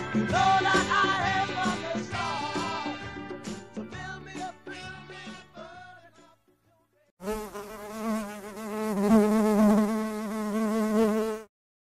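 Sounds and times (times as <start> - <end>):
bee buzzing: 7.2 - 11.5.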